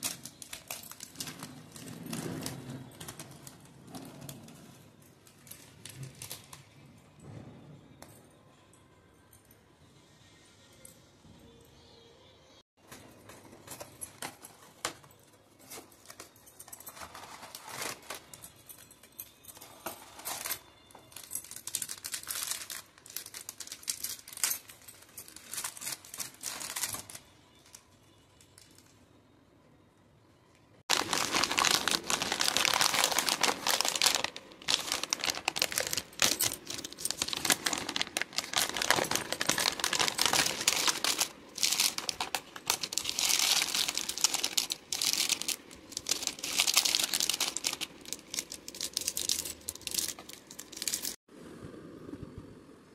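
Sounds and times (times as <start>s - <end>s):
plastic wrappers crinkling: 0.0s - 6.8s, 15.6s - 18.6s, 19.8s - 29.0s, 30.9s - 51.2s
cardboard box and foil tearing: 17.0s - 18.4s, 21.4s - 27.2s, 30.9s - 51.2s.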